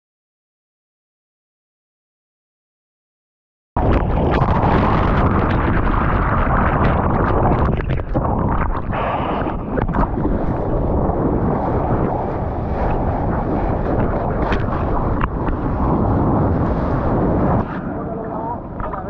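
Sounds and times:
water and wind rumbling on microphone: 3.8s - 19.0s.

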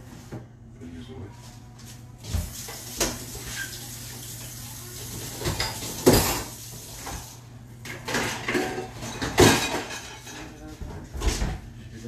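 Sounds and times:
dishes and pots clattering: 5.1s - 11.6s.

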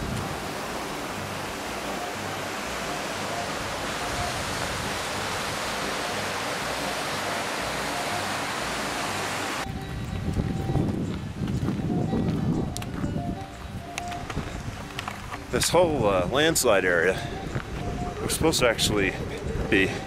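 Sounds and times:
river rushing over rocks: 0.0s - 9.8s.

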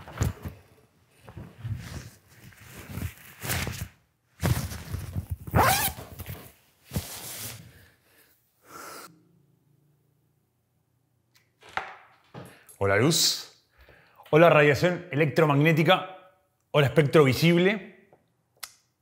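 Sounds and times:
swishing fabric: 1.2s - 7.9s
jacket unzipping: 1.5s - 7.6s.

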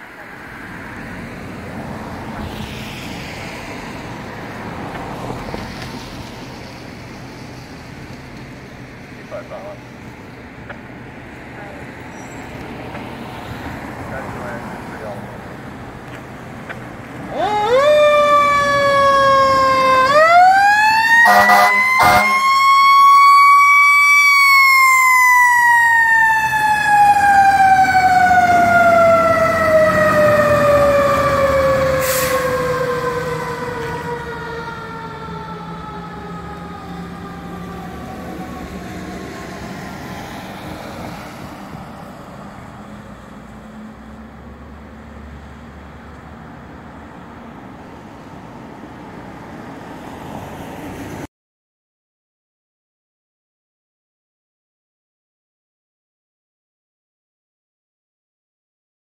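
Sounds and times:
mechanical fire engine siren wailing: 17.3s - 40.3s.

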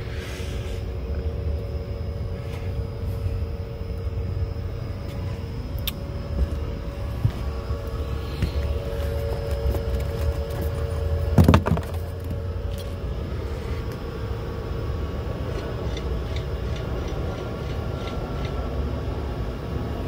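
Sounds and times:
mechanical equipment humming: 0.0s - 20.0s.

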